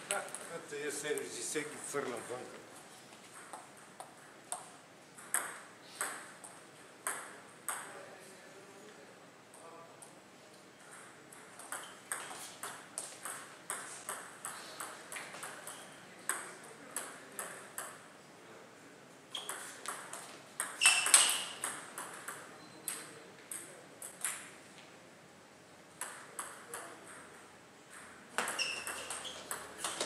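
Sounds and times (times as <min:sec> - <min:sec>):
high squeak: 0:20.8 - 0:21.6, 0:28.5 - 0:29.6.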